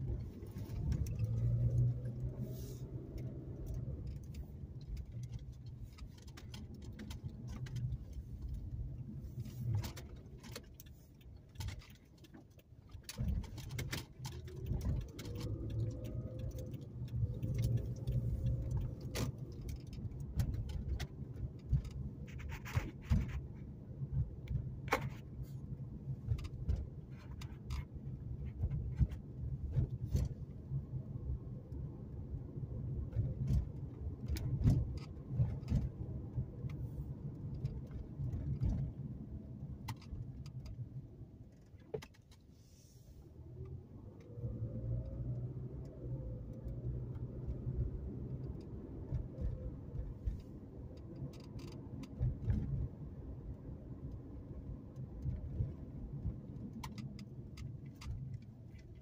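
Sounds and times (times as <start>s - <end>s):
car engine accelerating: 0.0s - 5.4s, 14.3s - 22.0s
light clicks and rattles: 0.0s - 42.8s, 43.6s - 59.0s.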